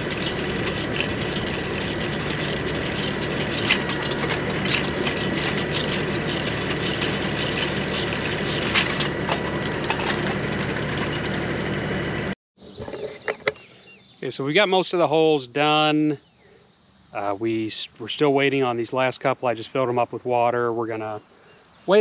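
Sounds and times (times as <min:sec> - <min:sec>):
auger clicks and cracks digging: 0:00.0 - 0:11.5
thin steady whine: 0:00.0 - 0:12.4
tractor engine running: 0:00.0 - 0:13.7.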